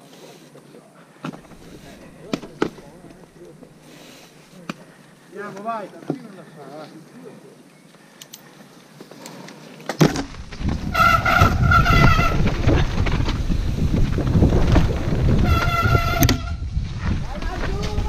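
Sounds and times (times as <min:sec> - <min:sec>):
bike tyres rumbling and rattling: 0:01.3 - 0:04.9, 0:09.9 - 0:18.0.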